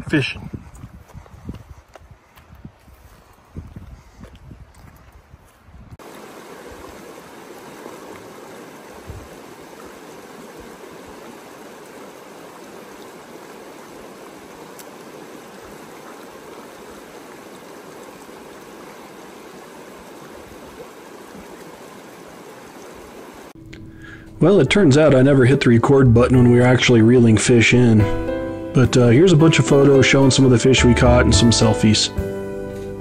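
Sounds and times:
river rushing over rocks: 0:06.0 - 0:23.5.

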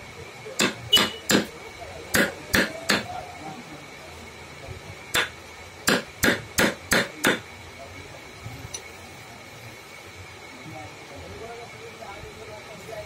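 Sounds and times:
hammer striking chisel into wood: 0:00.6 - 0:01.5, 0:02.1 - 0:03.1, 0:05.1 - 0:07.4.

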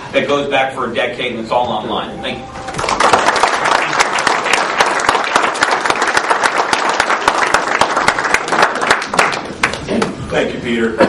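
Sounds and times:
audience applauding: 0:02.6 - 0:09.9.

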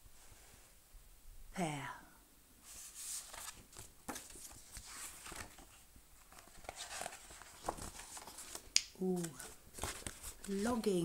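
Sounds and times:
book pages rustling: 0:02.6 - 0:11.0.

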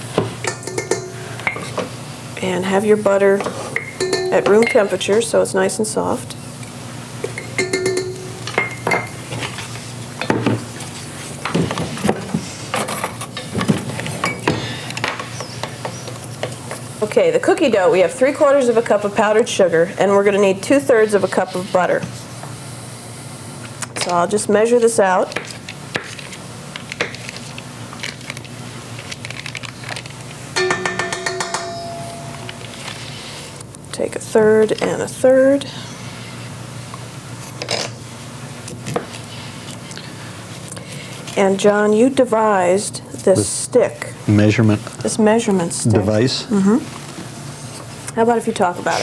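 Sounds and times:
metal utensils clinking on countertop: 0:00.5 - 0:01.7, 0:30.6 - 0:32.6
short ringing ping: 0:30.6 - 0:32.7.

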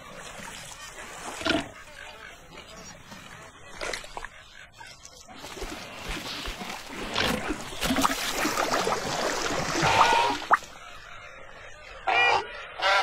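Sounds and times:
water splashing and sloshing: 0:00.0 - 0:12.0
crocodile call: 0:09.6 - 0:11.4.

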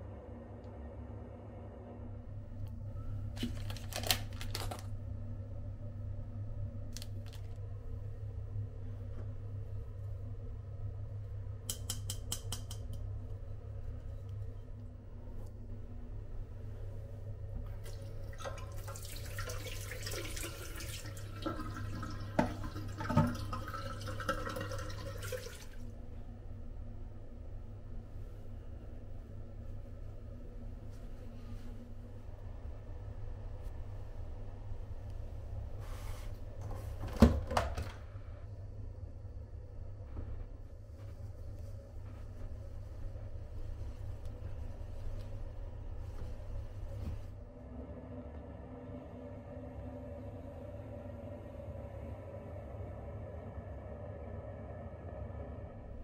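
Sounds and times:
low hum: 0:00.0 - 0:18.5, 0:21.7 - 0:56.0
cellophane wrapper crinkling: 0:03.4 - 0:04.9
tap water running into basin: 0:17.8 - 0:25.8.

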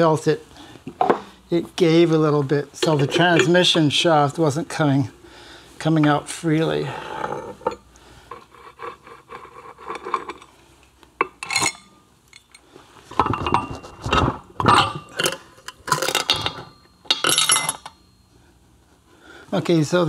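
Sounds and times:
metal parts clinking and scraping: 0:09.3 - 0:10.5, 0:11.2 - 0:18.1.

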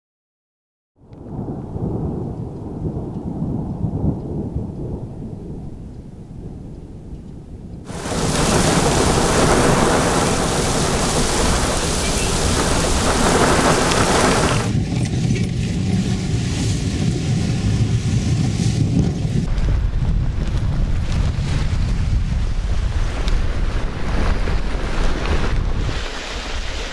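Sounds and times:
wind gusting on microphone: 0:01.0 - 0:26.9
deep rumble: 0:07.5 - 0:25.7
heavy rain hiss: 0:07.9 - 0:14.8.

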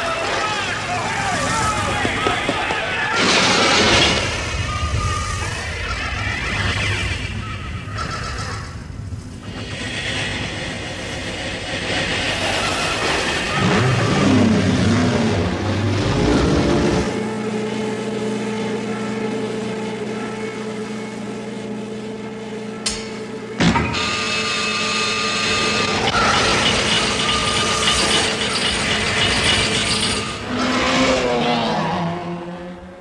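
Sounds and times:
cartoon race car engine: 0:11.9 - 0:22.8, 0:23.8 - 0:33.0.

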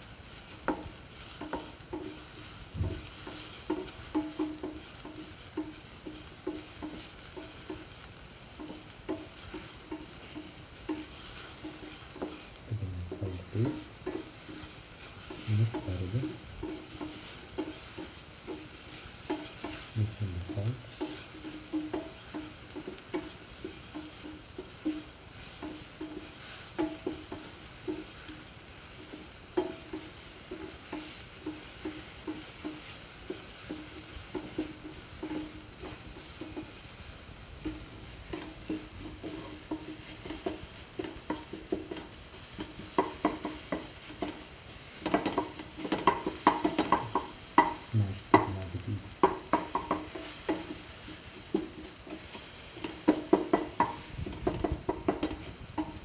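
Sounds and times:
faint sizzle: 0:00.0 - 0:56.0
spatula scraping a pan: 0:00.0 - 0:56.0.

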